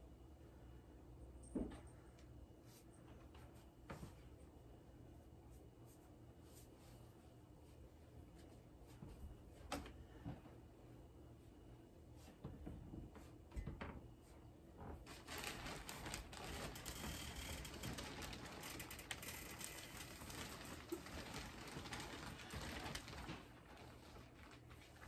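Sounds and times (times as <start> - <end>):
close rustling and crackling: 14.8 - 25.0.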